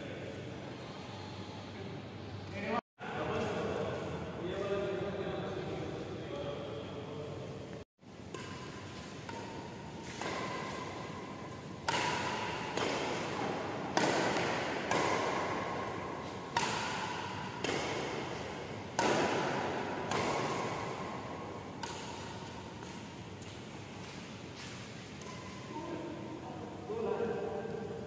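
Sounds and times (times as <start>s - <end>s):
rackets hitting shuttlecock: 8.1s - 25.7s.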